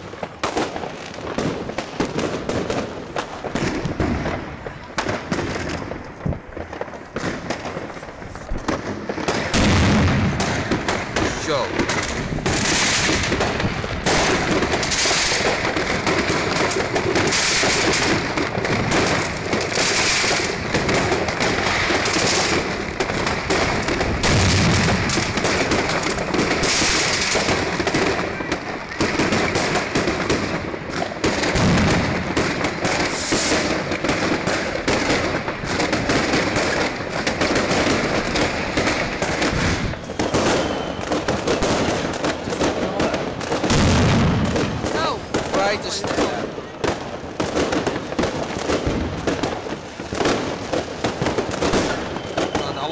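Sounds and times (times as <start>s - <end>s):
fireworks crackling bangs: 0.0s - 52.9s
fireworks hiss: 3.4s - 28.4s, 31.2s - 46.5s.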